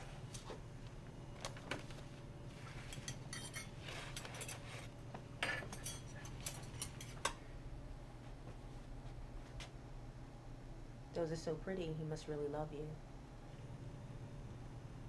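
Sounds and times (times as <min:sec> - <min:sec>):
low steady hum: 0:00.0 - 0:15.0
cutlery clinking on table: 0:02.9 - 0:04.6, 0:05.4 - 0:07.4.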